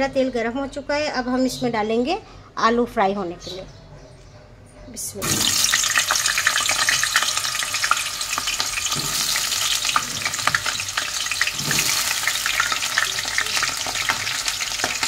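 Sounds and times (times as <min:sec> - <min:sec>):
potatoes sizzling in hot oil: 0:05.2 - 0:15.0.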